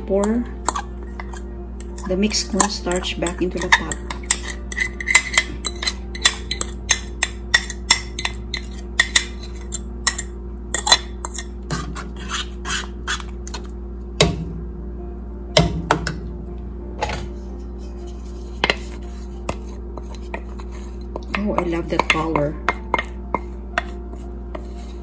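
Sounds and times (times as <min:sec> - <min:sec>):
steady low hum: 0:00.0 - 0:25.0
fork scraping ceramic bowl: 0:00.3 - 0:13.7, 0:17.8 - 0:21.4, 0:22.0 - 0:25.0.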